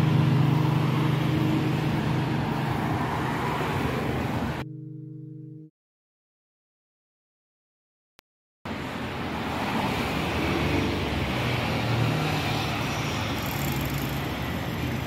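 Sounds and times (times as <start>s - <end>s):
rumble of engines and tyres: 0.0s - 4.7s, 8.7s - 15.0s
cars passing on the road: 0.0s - 5.7s, 8.7s - 15.0s.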